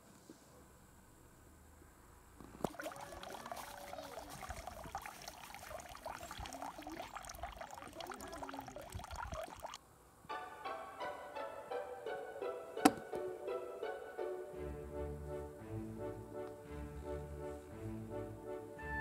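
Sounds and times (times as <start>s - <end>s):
water stream splashing into basin: 2.6s - 9.8s.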